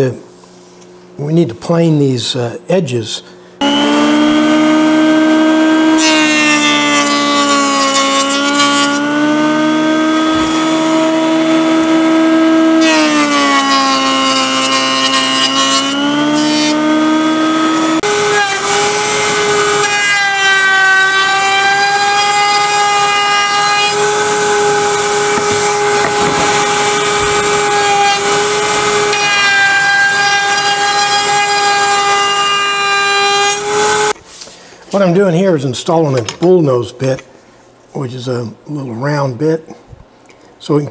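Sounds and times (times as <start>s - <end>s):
jointer motor whine: 3.6s - 34.2s
router whine: 3.6s - 34.2s.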